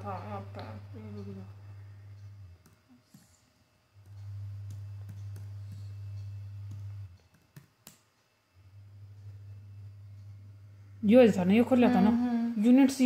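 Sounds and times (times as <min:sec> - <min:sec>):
steady low hum: 0:00.0 - 0:13.0
laptop keys and touchpad clicks: 0:06.7 - 0:08.1.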